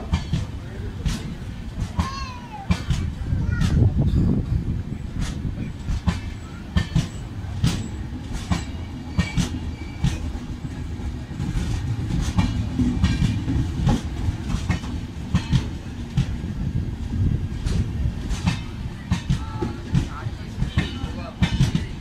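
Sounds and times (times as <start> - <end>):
wheels clacking over rail joints: 0.0 - 16.4
train running gear rumble: 0.0 - 22.0.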